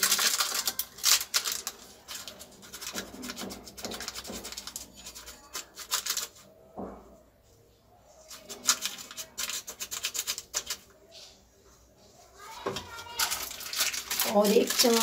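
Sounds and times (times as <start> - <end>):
plastic packet crinkling and tearing: 0.0 - 6.4, 8.3 - 10.8, 12.8 - 15.0.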